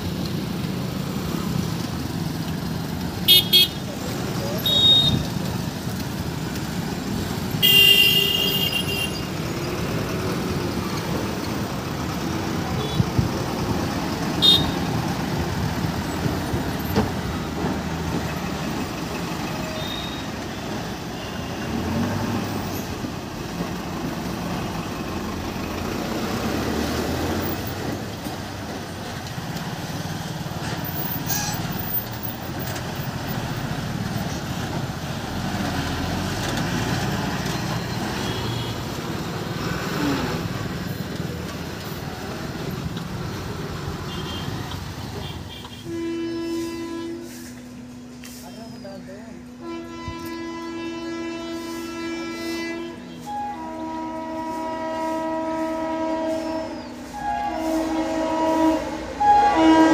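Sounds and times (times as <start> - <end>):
road traffic engines: 0.0 - 59.9
vehicle horn honking: 3.3 - 3.9, 4.6 - 5.3, 7.6 - 9.3, 12.8 - 13.3, 14.4 - 14.9, 19.6 - 21.9, 38.1 - 38.9, 44.1 - 47.7, 49.6 - 59.9.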